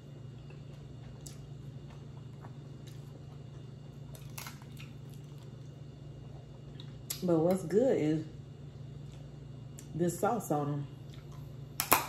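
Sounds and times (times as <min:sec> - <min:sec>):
freezer humming: 0:00.0 - 0:12.0
crab shells cracking: 0:04.1 - 0:05.6, 0:11.7 - 0:12.0.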